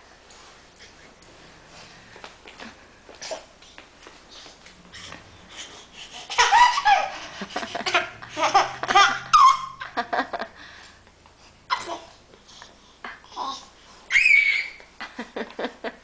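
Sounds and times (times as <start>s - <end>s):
baby laughing: 5.5s - 10.0s, 11.7s - 12.2s.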